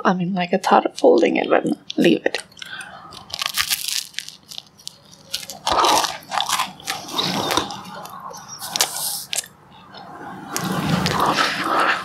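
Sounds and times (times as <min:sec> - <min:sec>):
chewing: 0:02.4 - 0:10.0
crunchy bites of bread: 0:02.6 - 0:08.1.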